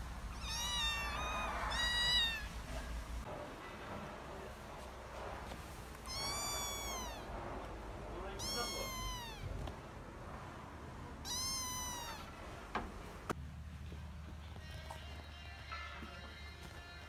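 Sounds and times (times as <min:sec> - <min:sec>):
cat meowing: 0:00.3 - 0:02.8, 0:05.9 - 0:07.4, 0:08.2 - 0:09.8, 0:11.2 - 0:12.8.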